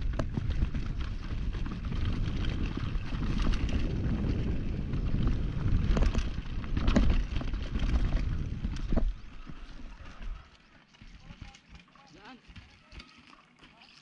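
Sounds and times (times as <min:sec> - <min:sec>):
wind rumbling on microphone: 0:00.0 - 0:10.6
bike rattling: 0:00.0 - 0:14.0
bike tyres on dirt: 0:00.0 - 0:14.0.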